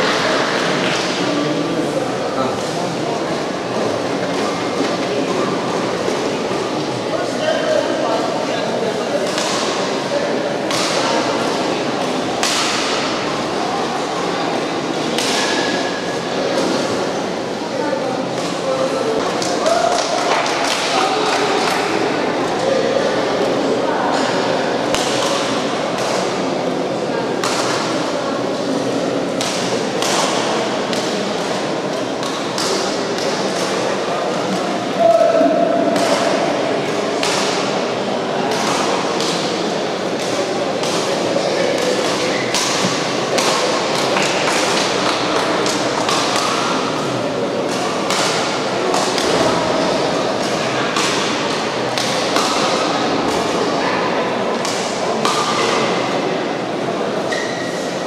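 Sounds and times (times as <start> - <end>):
hall background noise: 0.0 - 58.0
racket striking shuttlecock: 9.2 - 9.9, 10.6 - 11.3, 12.3 - 13.3, 15.2 - 15.8, 35.9 - 37.8, 38.5 - 53.5.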